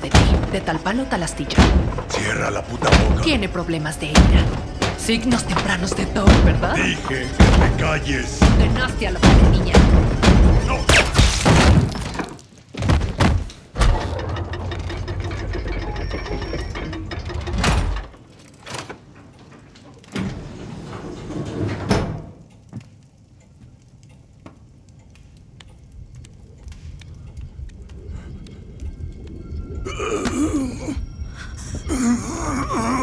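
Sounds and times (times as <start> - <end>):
heavy sliding door rumble: 0.1 - 10.8, 13.8 - 18.2, 19.2 - 22.4
rushing hits and thuds: 1.5 - 2.2, 4.1 - 12.2, 12.8 - 14.2
small clicks: 22.4 - 29.6.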